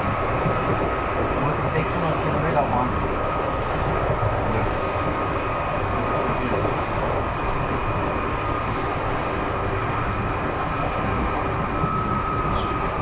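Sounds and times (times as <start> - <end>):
high whine: 0.0 - 13.0
train wheels rumbling: 0.0 - 13.0.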